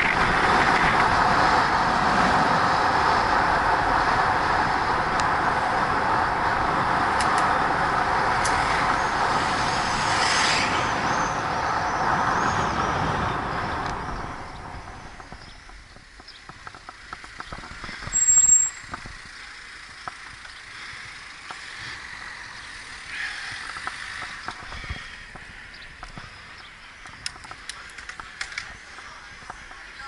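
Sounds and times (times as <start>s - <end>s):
wind noise: 0.0s - 21.2s, 21.8s - 30.0s
bicycle braking: 0.0s - 30.0s
high-pitched brake squeal: 18.1s - 18.8s.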